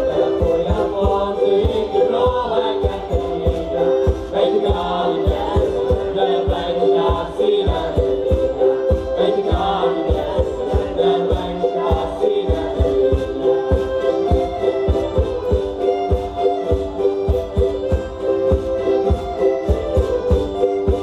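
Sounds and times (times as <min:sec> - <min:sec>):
group singing: 0:00.0 - 0:15.6
steady low drum beat: 0:00.0 - 0:21.0.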